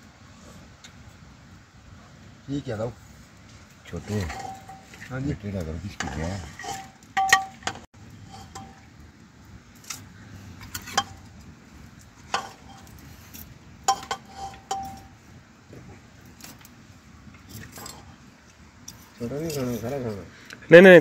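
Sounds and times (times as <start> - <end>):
dishes and utensils clinking: 4.1 - 5.1, 5.9 - 8.9, 13.9 - 15.1.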